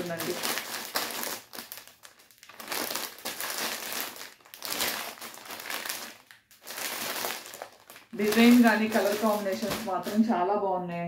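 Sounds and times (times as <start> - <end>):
plastic packet crinkling: 0.0 - 10.4.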